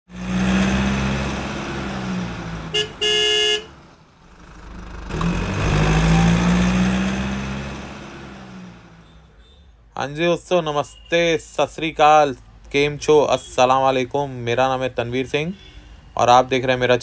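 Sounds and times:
car engine drone: 0:00.1 - 0:09.3
car horn beeping: 0:02.7 - 0:03.8
car driving past: 0:03.8 - 0:09.3.

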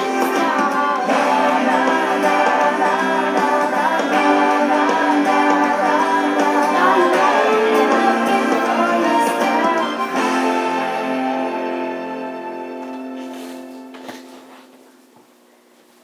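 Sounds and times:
person singing: 0:00.0 - 0:12.1
karaoke backing track with guitar: 0:00.0 - 0:14.6.

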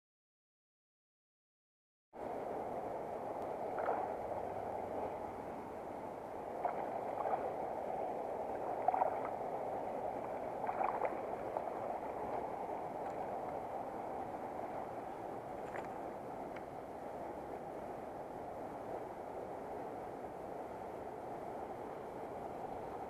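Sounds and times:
water splashes: 0:02.2 - 0:19.0
creek water flowing: 0:02.2 - 0:23.0.

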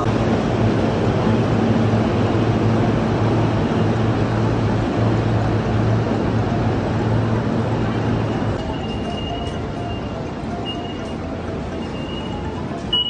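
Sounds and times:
crowd and walking noise: 0:06.3 - 0:13.0.

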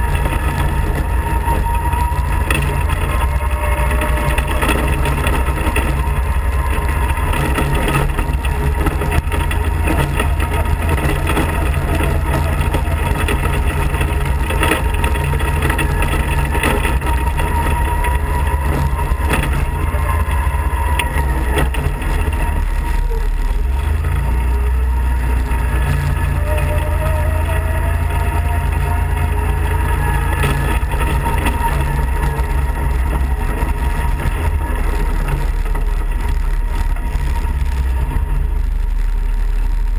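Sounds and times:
kart engine droning: 0:00.0 - 0:39.9
tyres on wet gravel: 0:00.0 - 0:39.9.

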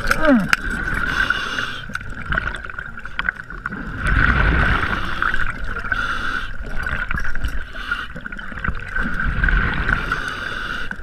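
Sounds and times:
underwater regulator bubbles: 0:00.0 - 0:11.0.

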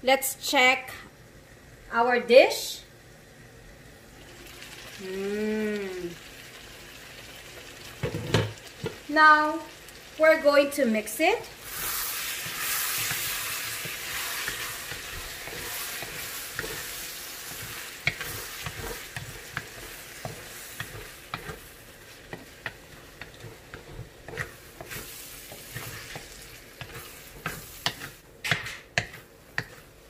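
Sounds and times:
food sizzling in a frying pan: 0:03.5 - 0:30.0
utensil scraping a pan: 0:11.6 - 0:30.0.

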